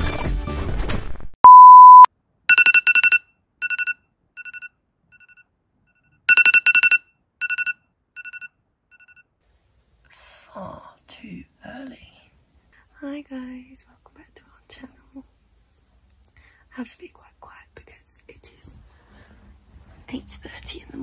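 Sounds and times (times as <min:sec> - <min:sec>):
loud steady beep: 0:01.4 - 0:09.2
alarm clock beeping: 0:02.5 - 0:09.2.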